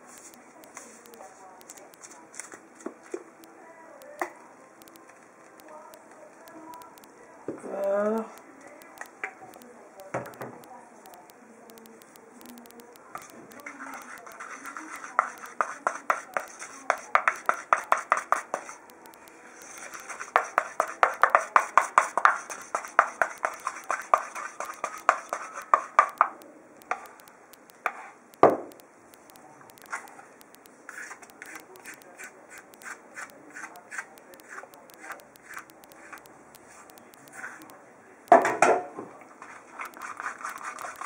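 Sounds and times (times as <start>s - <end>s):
spatula scraping bowl: 13.2s - 18.8s, 19.5s - 26.2s, 30.9s - 37.7s, 39.4s - 41.0s
wooden spatula knocking bowl: 15.2s - 18.7s, 20.4s - 26.3s.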